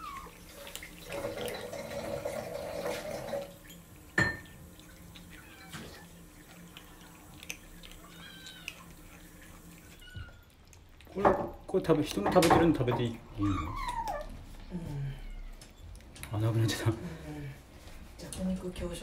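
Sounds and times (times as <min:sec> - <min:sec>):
kittens crunching dry food: 0:00.0 - 0:17.1
kitten mewing: 0:07.8 - 0:09.1, 0:13.3 - 0:15.5.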